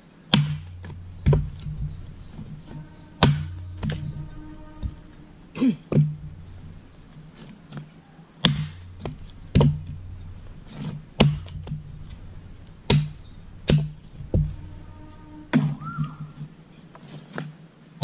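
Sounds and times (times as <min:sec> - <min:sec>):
axe chopping firewood: 0:00.3 - 0:04.0, 0:07.1 - 0:14.5.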